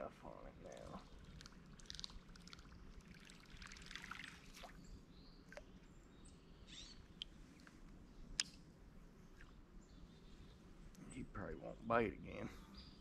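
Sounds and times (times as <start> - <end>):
water trickling: 0.6 - 4.9.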